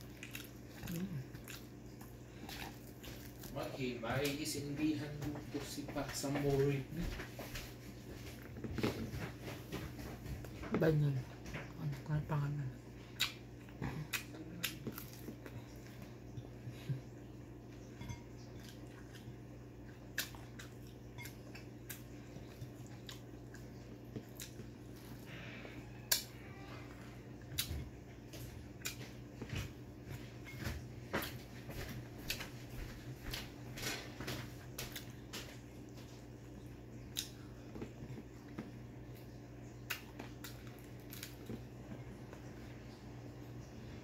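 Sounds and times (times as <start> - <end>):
chewing and lip smacks: 13.1 - 16.5, 18.6 - 25.2, 27.4 - 29.6, 34.7 - 41.7.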